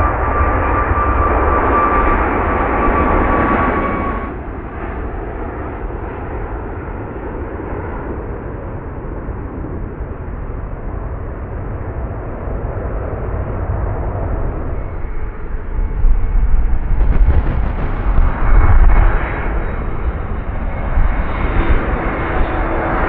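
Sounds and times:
jet engines roaring: 0:00.0 - 0:23.0.

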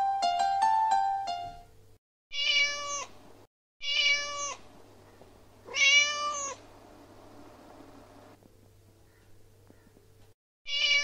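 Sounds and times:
cat meowing: 0:02.3 - 0:03.2, 0:03.8 - 0:04.6, 0:05.6 - 0:06.6, 0:10.7 - 0:11.0.

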